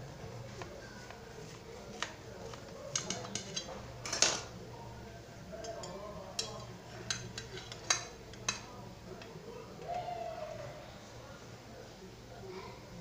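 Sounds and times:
metal utensil clinking on pan: 0:02.9 - 0:04.5, 0:05.6 - 0:08.7.

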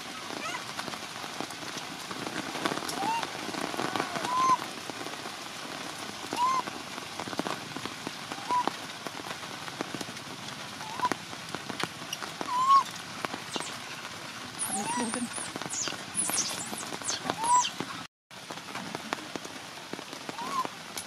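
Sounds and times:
heavy rain dripping: 0:00.0 - 0:21.0
baby monkey crying: 0:14.6 - 0:17.7.

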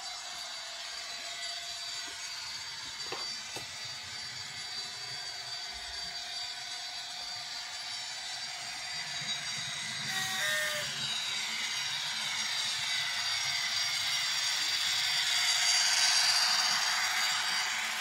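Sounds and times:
model train diesel engine sound: 0:00.0 - 0:18.0
model train wheels rattling on track: 0:07.5 - 0:18.0.

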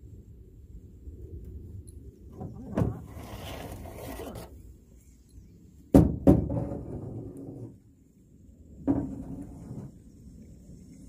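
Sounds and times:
rubbing and rustling: 0:02.5 - 0:04.6
sharp knocks: 0:05.9 - 0:07.0.

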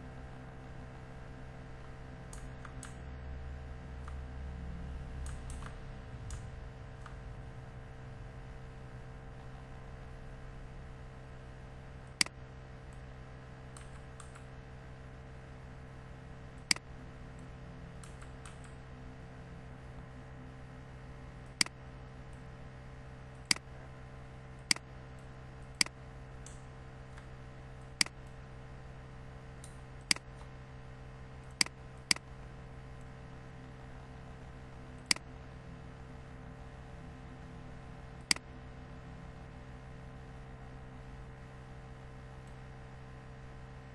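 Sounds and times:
low electrical hum: 0:00.0 - 0:43.9
computer mouse clicking: 0:01.8 - 0:03.0, 0:04.0 - 0:04.2, 0:05.2 - 0:07.2, 0:13.7 - 0:14.5, 0:16.6 - 0:18.8, 0:29.6 - 0:30.5, 0:38.2 - 0:38.5.

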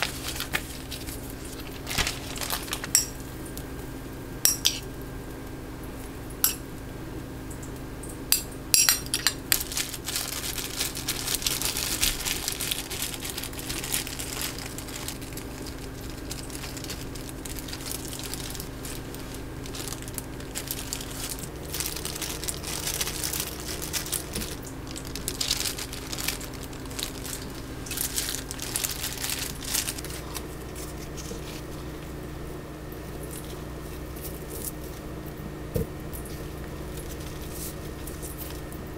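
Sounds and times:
packaging crinkling: 0:00.0 - 0:03.2, 0:09.1 - 0:32.2, 0:36.2 - 0:38.8
dishes and utensils clinking: 0:04.5 - 0:04.8, 0:08.8 - 0:09.4.

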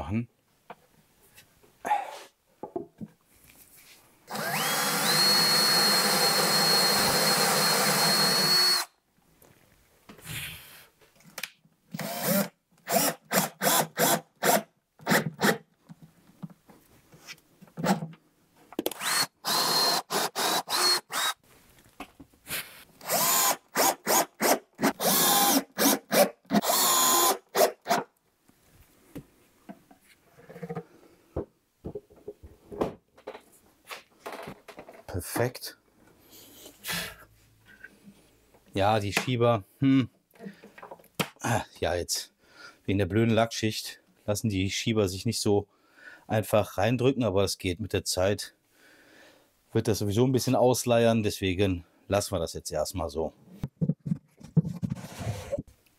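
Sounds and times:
cordless drill whining: 0:04.3 - 0:08.9, 0:12.0 - 0:14.6, 0:18.9 - 0:21.4, 0:23.0 - 0:28.0.

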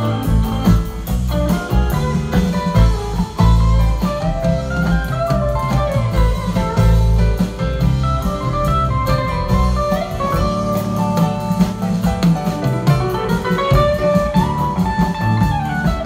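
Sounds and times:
bass guitar: 0:00.0 - 0:16.0
drum kit: 0:00.0 - 0:16.0
electric guitars playing melody: 0:00.0 - 0:16.0.

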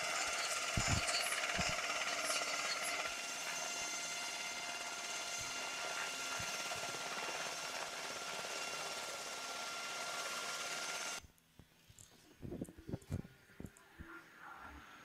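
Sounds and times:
helicopter engines and rotors: 0:00.0 - 0:11.2.

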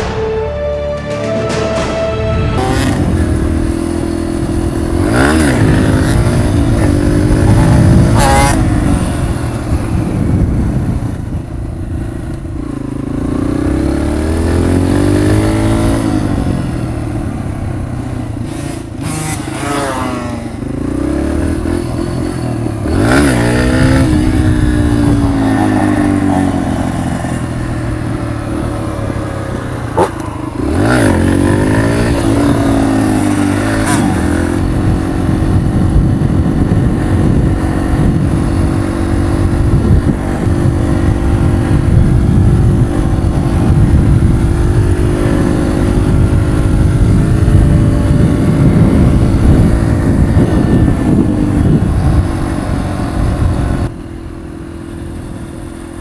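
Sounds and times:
sharp knock: 0:00.0 - 0:03.3
dirt bike engine revving: 0:01.2 - 0:10.8, 0:12.6 - 0:17.3, 0:18.3 - 0:53.9.

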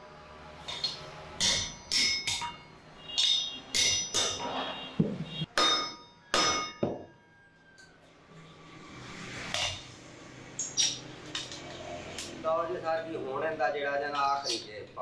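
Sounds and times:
hammer striking metal on anvil: 0:00.7 - 0:04.5, 0:05.5 - 0:07.1.

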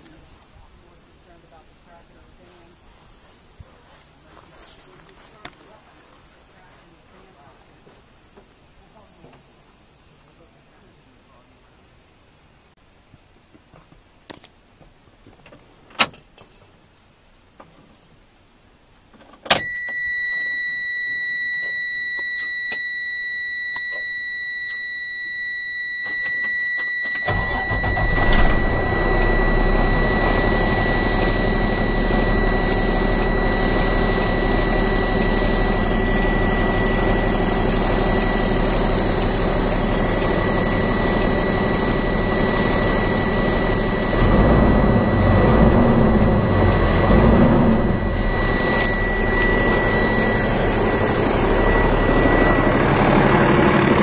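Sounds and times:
high warning buzzer: 0:19.5 - 0:54.0
diesel truck engine idling: 0:27.3 - 0:54.0.

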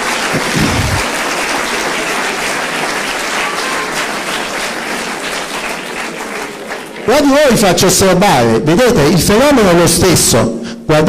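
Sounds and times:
audience applause: 0:00.0 - 0:07.6.

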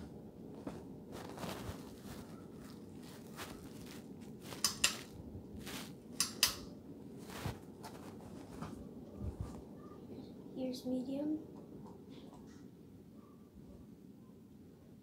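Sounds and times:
ceiling fan running: 0:00.0 - 0:15.0
pull-chain switch clicking: 0:06.2 - 0:06.6.

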